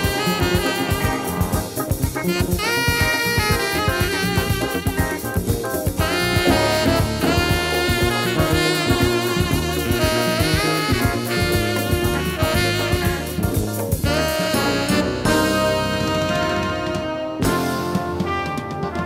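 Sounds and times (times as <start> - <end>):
bass: 0.0 - 19.0
brass section: 0.0 - 19.0
drum kit: 0.0 - 19.0
tenor saxophone melody: 0.0 - 19.0.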